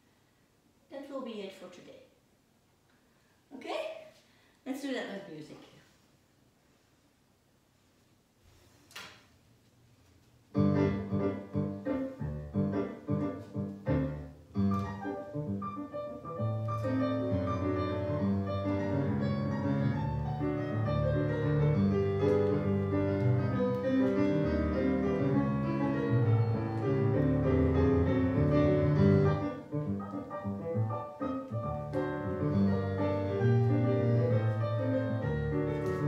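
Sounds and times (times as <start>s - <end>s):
solo piano playing: 10.5s - 36.0s.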